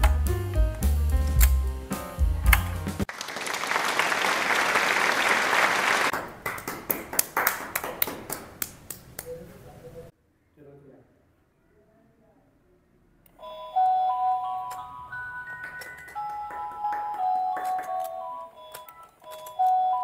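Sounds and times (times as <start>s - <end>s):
background music with bass line: 0.0s - 3.1s
people clapping: 2.6s - 9.4s, 15.4s - 18.3s.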